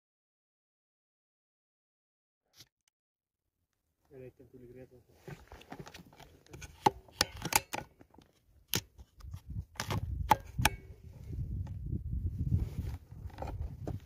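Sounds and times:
rifle handling clicks and knocks: 0:05.4 - 0:10.9
rubbing against microphone: 0:12.2 - 0:14.0.

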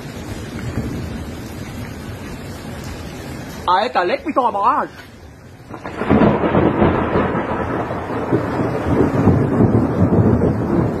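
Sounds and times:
thunder rumbling: 0:00.0 - 0:03.1, 0:05.7 - 0:11.0.

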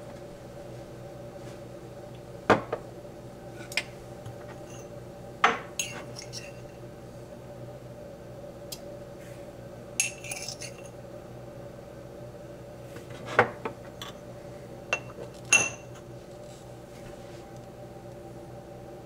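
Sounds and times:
steady low hum: 0:00.0 - 0:19.0
spoon mug and cup clinking: 0:04.7 - 0:06.6, 0:10.0 - 0:10.9, 0:15.0 - 0:16.0.

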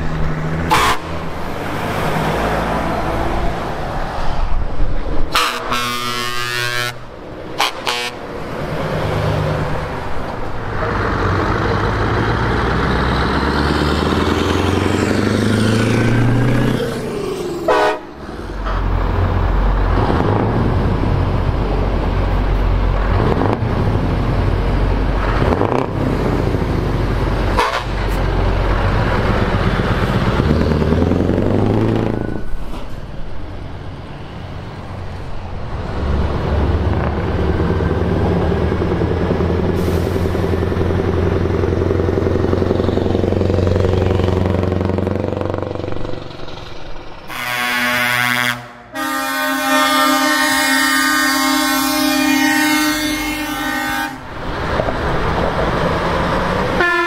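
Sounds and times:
heavy trucks driving past: 0:00.0 - 0:57.0
truck horn toot: 0:00.7 - 0:01.2, 0:05.3 - 0:08.3, 0:17.7 - 0:18.2, 0:27.5 - 0:28.2, 0:47.3 - 0:54.3, 0:56.8 - 0:57.0.

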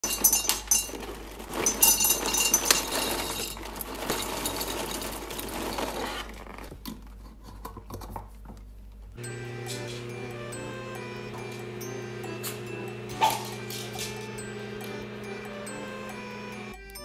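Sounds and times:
kibble rattling into glass jar: 0:00.0 - 0:06.0.

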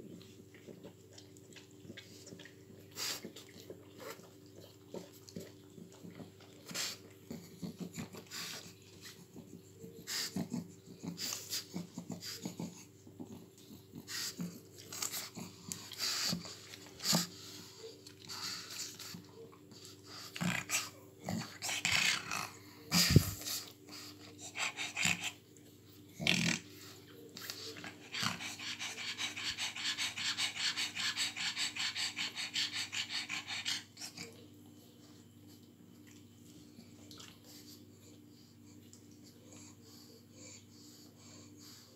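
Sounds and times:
dog panting rapidly: 0:20.0 - 0:25.4, 0:26.8 - 0:34.4.

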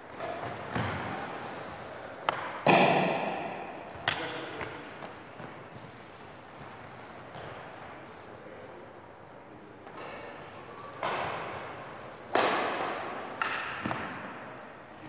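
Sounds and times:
rackets hitting shuttlecock: 0:00.1 - 0:06.0, 0:09.8 - 0:14.6.

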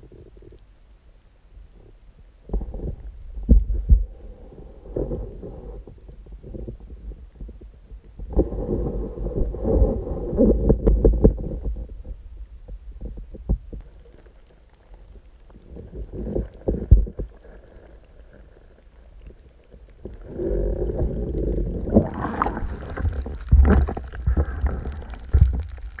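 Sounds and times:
muffled water sloshing: 0:19.3 - 0:26.0.

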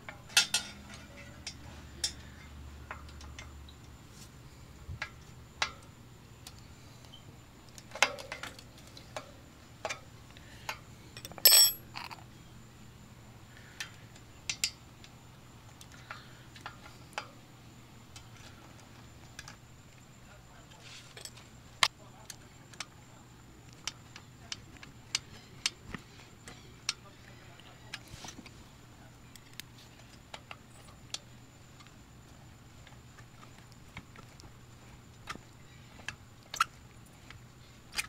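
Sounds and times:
small metal clicks and clinks: 0:00.1 - 0:04.0, 0:10.7 - 0:12.3, 0:13.8 - 0:17.4.

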